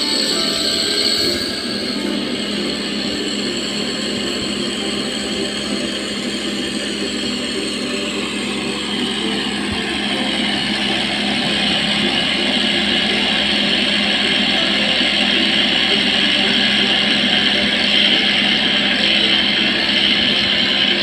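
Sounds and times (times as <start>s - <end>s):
cotton candy machine whirring: 0.0s - 21.0s.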